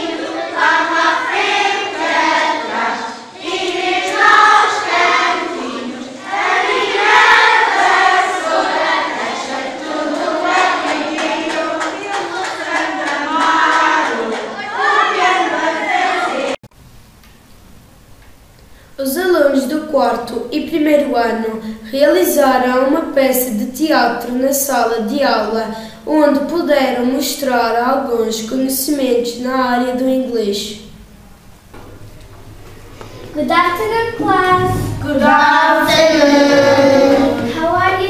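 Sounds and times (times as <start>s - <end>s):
children singing in chorus: 0.0s - 16.6s, 34.0s - 38.0s.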